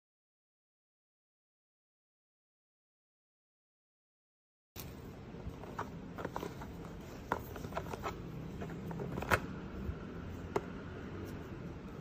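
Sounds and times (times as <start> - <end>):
steady low hum: 4.8 - 12.0.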